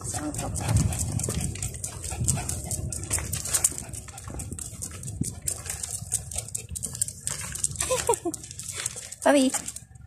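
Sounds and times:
leash clicks and rustles: 0.0s - 10.0s
low handling rumble: 0.0s - 10.0s.

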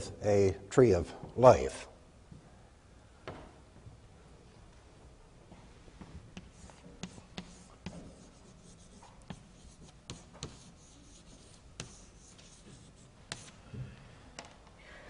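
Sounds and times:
chalk tapping and scratching: 6.3s - 13.6s.

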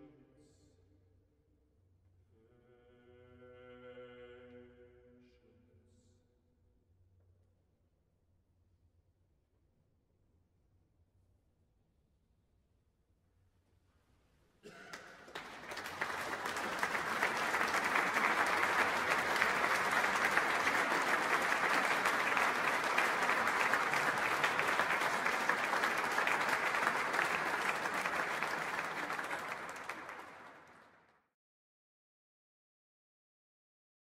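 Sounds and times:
audience applauding: 14.7s - 31.1s.

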